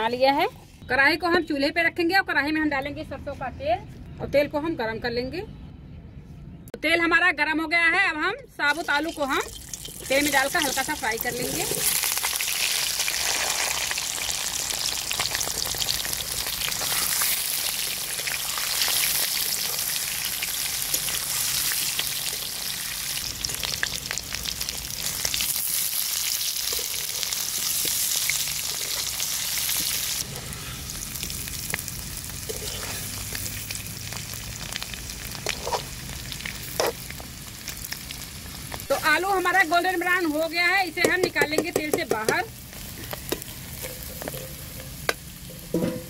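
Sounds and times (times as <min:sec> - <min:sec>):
potatoes sizzling in hot oil: 0:08.7 - 0:45.7
metal spatula scraping a pan: 0:32.4 - 0:33.4.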